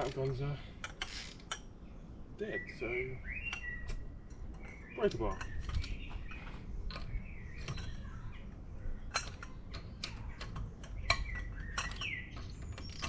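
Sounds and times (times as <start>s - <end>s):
birds chirping: 0.0s - 13.0s
metal tool clinking on lug nuts: 3.5s - 8.1s, 8.9s - 13.0s.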